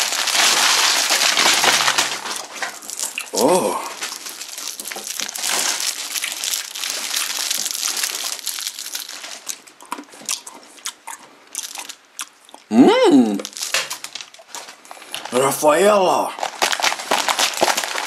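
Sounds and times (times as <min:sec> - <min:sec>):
sharp crackles: 0:00.0 - 0:09.6, 0:13.4 - 0:15.5, 0:16.3 - 0:18.0
plastic wrappers crinkling: 0:00.0 - 0:10.3, 0:11.6 - 0:12.0, 0:13.4 - 0:15.6, 0:16.2 - 0:18.0
short voiced exclamation: 0:12.7 - 0:13.5.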